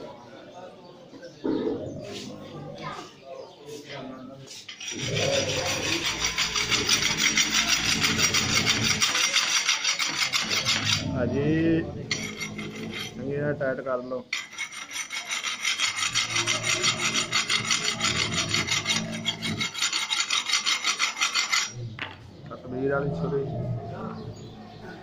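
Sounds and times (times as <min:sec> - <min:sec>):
knife sharpening strokes: 0:14.3 - 0:21.8.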